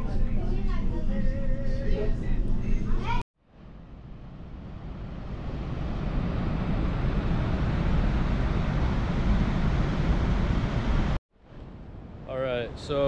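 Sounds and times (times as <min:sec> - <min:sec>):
wind on microphone: 0:03.7 - 0:13.0
ocean surf: 0:04.3 - 0:11.2.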